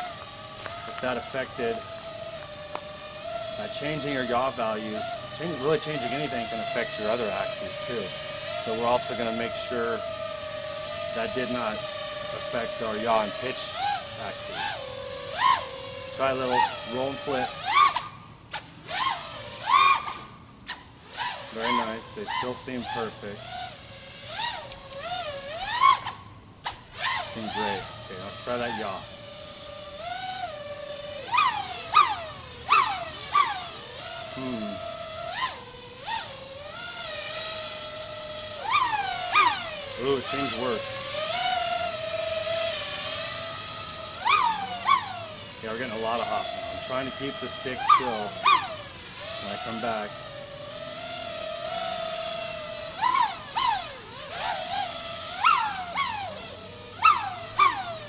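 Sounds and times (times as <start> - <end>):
quadcopter motors whining: 0.0 - 58.0.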